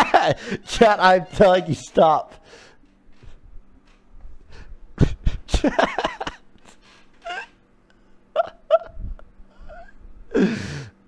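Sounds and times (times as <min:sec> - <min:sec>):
faint steady hum: 0:00.0 - 0:11.0
man's wordless voice bursts: 0:00.6 - 0:02.4.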